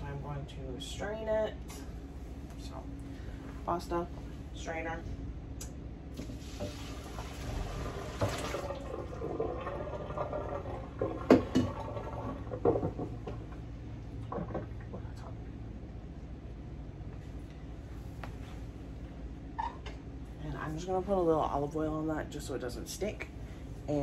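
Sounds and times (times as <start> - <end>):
water pouring into strainer: 6.2 - 12.5.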